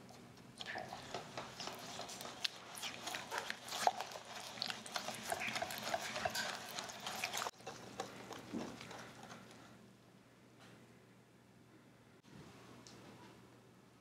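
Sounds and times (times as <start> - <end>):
whisk beating egg in bowl: 0.7 - 9.7.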